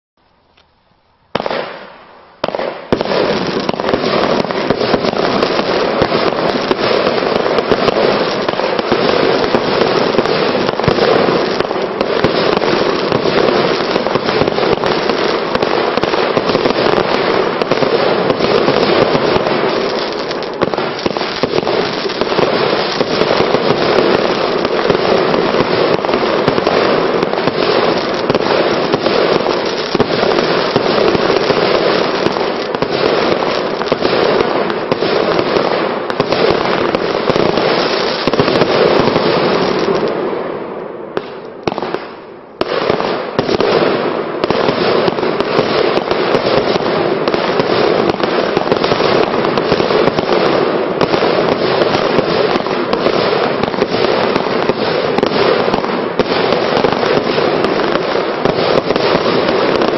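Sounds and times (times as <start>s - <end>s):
fireworks firing and crackling: 0.6s - 59.9s.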